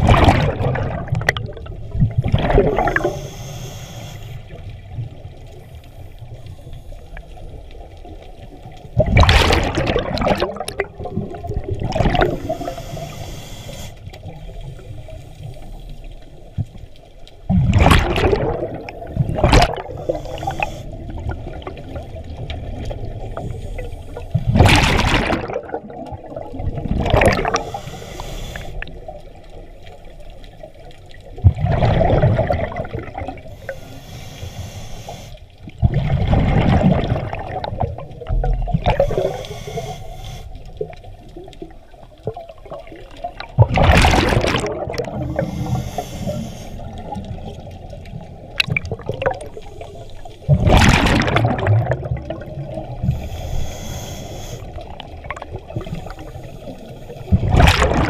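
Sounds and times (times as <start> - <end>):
exhaled bubbles rushing underwater: 0.0 - 34.5, 35.5 - 58.0
low underwater rumble: 35.6 - 58.0.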